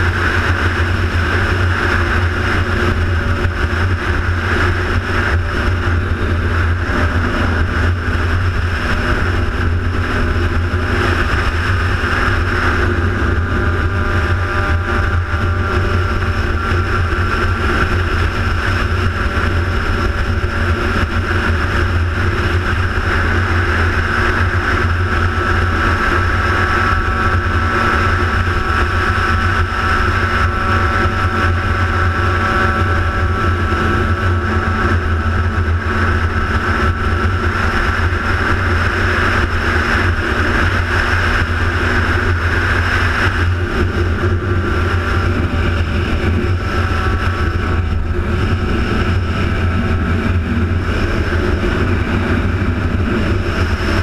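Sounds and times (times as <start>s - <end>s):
motorcycle engine cruising: 0.0s - 54.0s.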